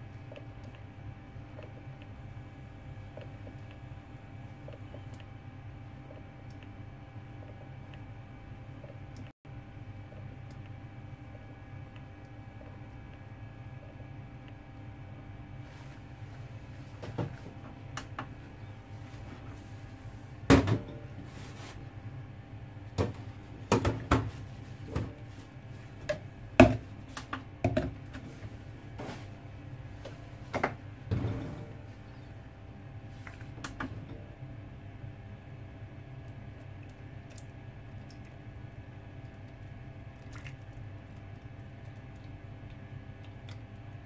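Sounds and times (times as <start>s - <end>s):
steady low hum: 0.0s - 44.0s
plastic jugs knocking and clattering: 20.5s - 21.0s, 23.0s - 25.2s, 26.0s - 28.2s.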